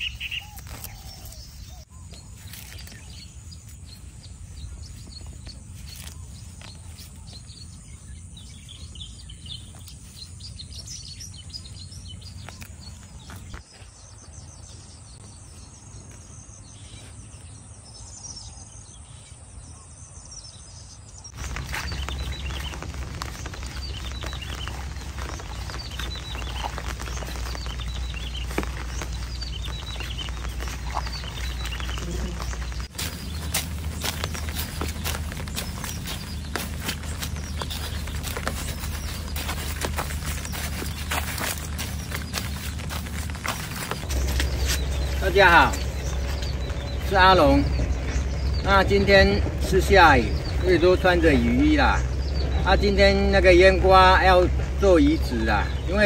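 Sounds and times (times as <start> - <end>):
birds chirping: 0.0 - 56.0
low rumble of rain: 21.4 - 56.0.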